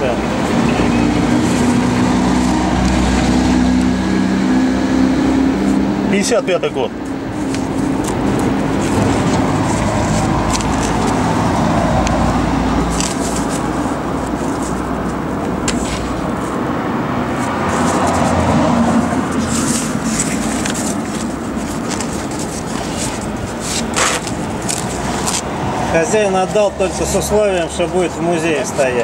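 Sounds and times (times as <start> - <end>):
road traffic noise: 0.0 - 29.0
paper pages rustling: 1.2 - 3.3, 7.0 - 25.6.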